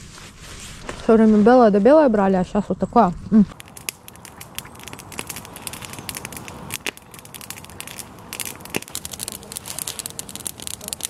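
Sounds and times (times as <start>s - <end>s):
campfire crackling: 3.5s - 11.0s.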